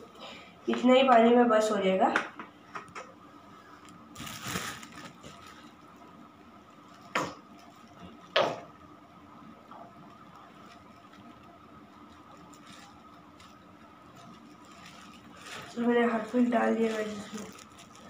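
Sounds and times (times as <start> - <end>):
handling noises: 3.8 - 5.9.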